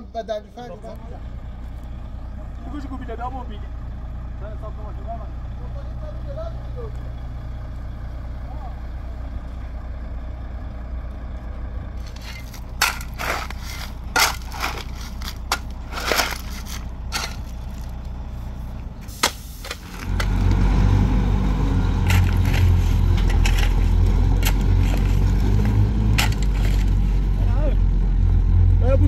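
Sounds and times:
diesel truck engine running: 0.0s - 29.0s
shovel scraping into gravel: 12.0s - 17.9s, 22.0s - 27.2s.

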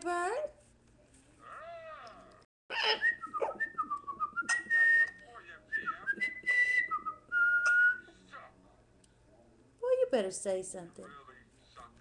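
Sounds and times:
parrot raspy call: 2.7s - 3.2s
parrot whistling: 2.7s - 5.1s.

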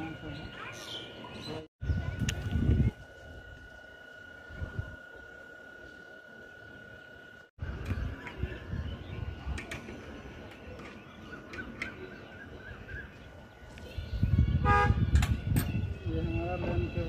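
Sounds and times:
wind buffeting microphone: 1.8s - 3.6s, 4.4s - 5.0s, 7.6s - 10.5s, 12.5s - 17.0s.

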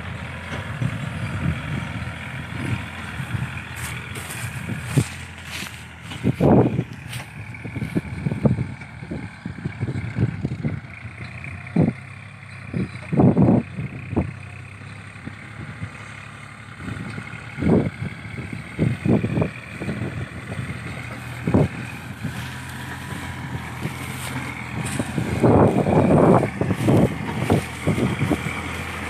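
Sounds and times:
tractor engine running: 0.0s - 29.0s
wind gusts on microphone: 0.7s - 10.9s, 16.8s - 29.0s.

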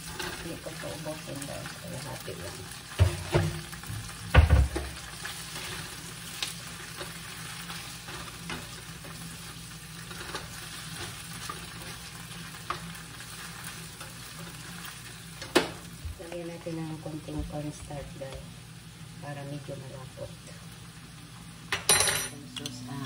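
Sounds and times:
tofu sizzling in oil: 0.0s - 16.2s
spatula scraping a pan: 5.1s - 15.2s.

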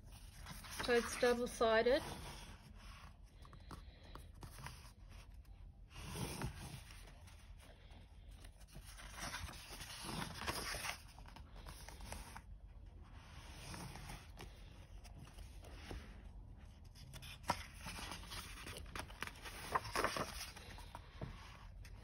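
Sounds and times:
paper pages rustling: 0.0s - 12.5s, 13.1s - 22.0s.

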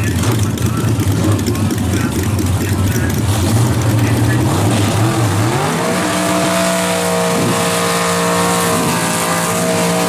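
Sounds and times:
car engine revving high: 0.0s - 10.0s.

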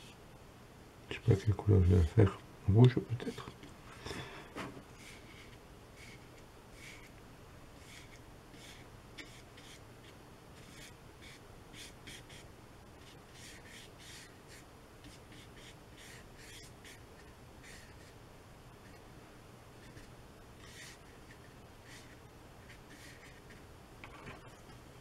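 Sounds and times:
paintbrush scrubbing on paper: 5.0s - 7.1s, 7.8s - 9.8s, 10.6s - 18.2s, 19.8s - 23.6s.

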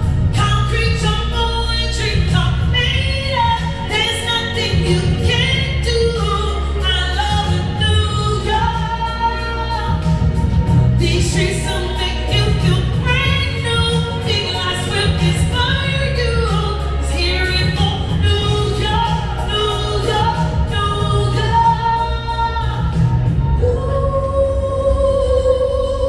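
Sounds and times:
music with low bass: 0.0s - 26.0s
woman singing through microphone: 0.0s - 26.0s.

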